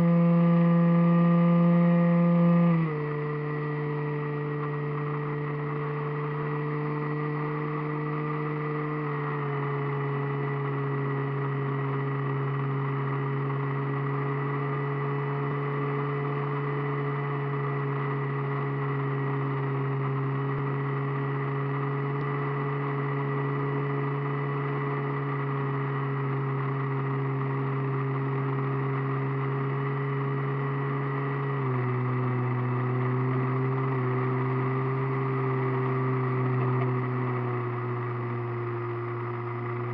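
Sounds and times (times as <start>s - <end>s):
model airplane motor droning: 0.0s - 22.8s.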